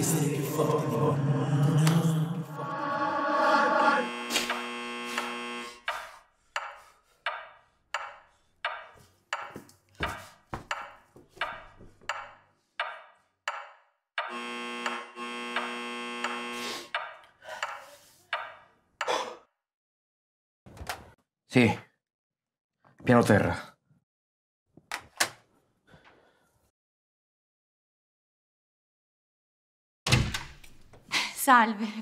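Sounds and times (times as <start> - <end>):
intercom door buzzer: 2.6 - 5.9, 14.2 - 16.9.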